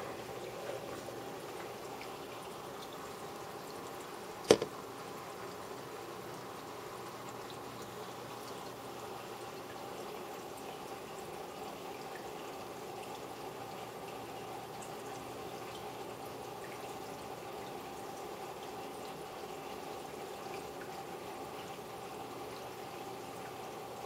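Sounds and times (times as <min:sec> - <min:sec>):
faint equipment hum: 0:00.0 - 0:24.0.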